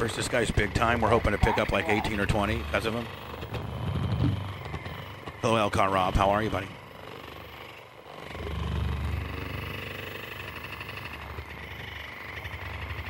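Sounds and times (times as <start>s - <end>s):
massage gun buzzing: 0.0s - 13.0s.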